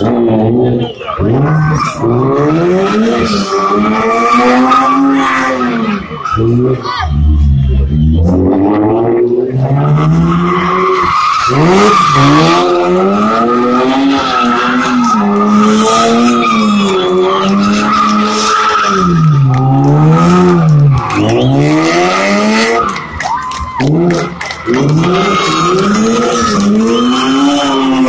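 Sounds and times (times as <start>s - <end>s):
car engine at high revs: 0.0s - 28.0s.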